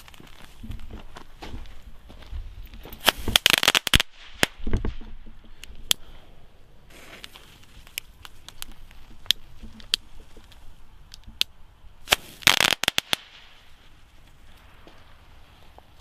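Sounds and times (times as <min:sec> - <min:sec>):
firework pops: 0:02.9 - 0:05.3, 0:12.1 - 0:13.5
firework crackling burst: 0:03.0 - 0:04.6, 0:12.0 - 0:14.0.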